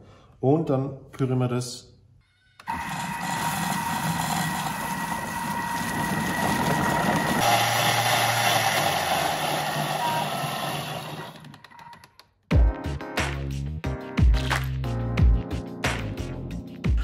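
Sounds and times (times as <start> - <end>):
food processor motor whine: 2.6 - 11.8.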